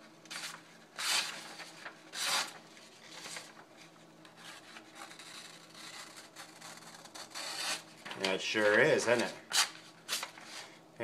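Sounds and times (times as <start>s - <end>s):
knife slicing paper: 0.3s - 2.6s, 5.0s - 7.9s
blade scraping on paper: 0.3s - 3.5s, 4.4s - 8.0s.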